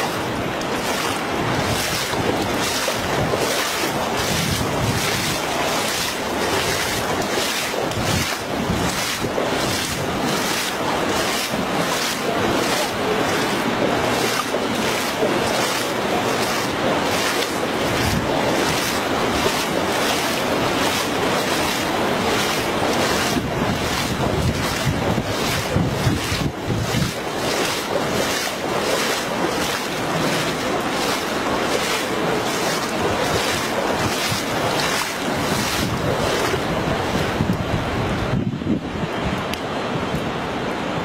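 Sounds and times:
wind buffeting microphone: 0.2s - 40.5s.

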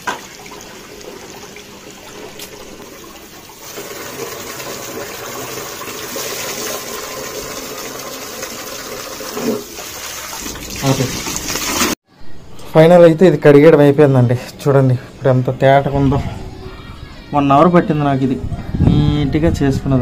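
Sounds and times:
tap water running and splashing: 0.0s - 12.0s.

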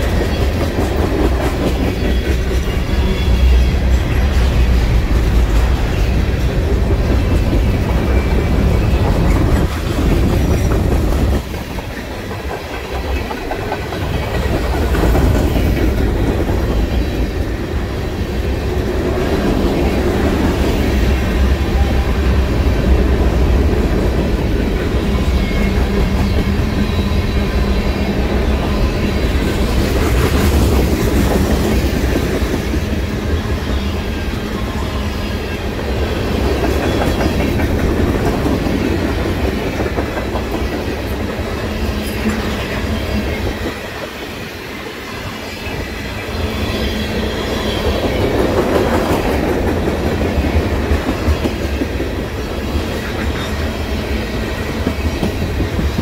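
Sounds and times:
freight train wheels rumbling and clicking: 0.0s - 56.0s.

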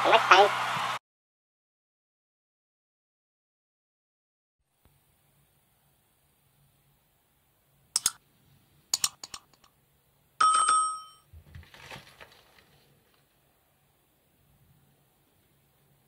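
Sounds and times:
sharp clicks: 8.0s - 8.2s, 9.0s - 9.7s
metallic ding: 10.4s - 11.2s.

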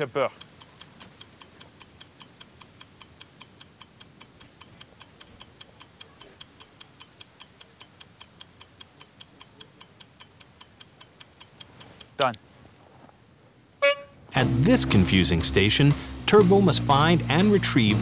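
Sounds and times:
fast clock-like ticking: 0.0s - 12.4s.

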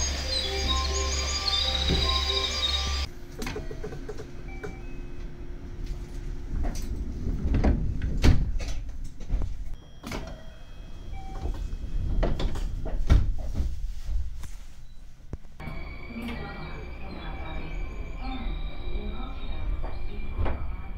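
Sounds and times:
train doors closing with thud: 0.0s - 4.9s, 6.6s - 10.6s.

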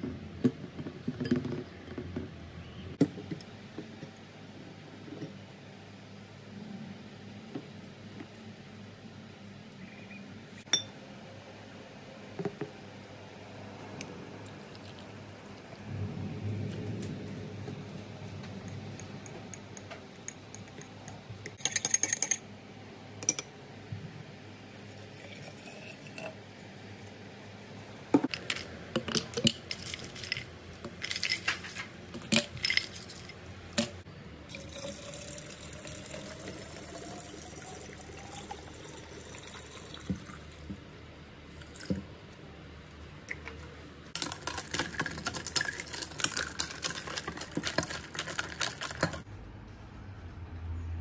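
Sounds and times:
spoon clinking against ceramic mug: 10.7s - 11.0s
ice cubes clinking into glass bottle: 28.4s - 33.3s, 44.2s - 49.2s.

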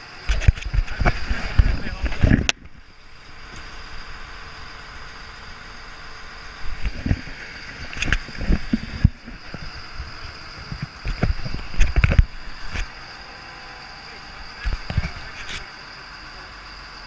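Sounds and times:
boat engine rumble at sea: 0.0s - 17.0s
thin high tone: 0.9s - 17.0s
camera rubbing against jacket: 6.7s - 12.9s, 14.6s - 15.7s.

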